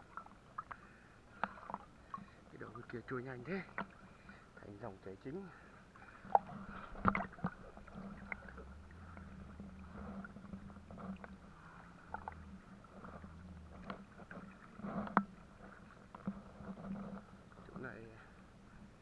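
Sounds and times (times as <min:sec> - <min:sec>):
small splashes: 0:00.0 - 0:04.4, 0:05.5 - 0:18.4
low steady hum: 0:00.0 - 0:19.0
river water sloshing: 0:00.0 - 0:19.0.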